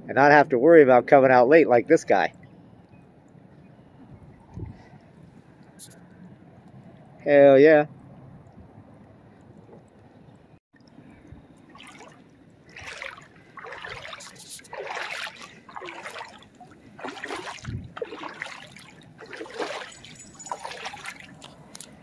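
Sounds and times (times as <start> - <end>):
water splashing and trickling: 1.9 - 22.0.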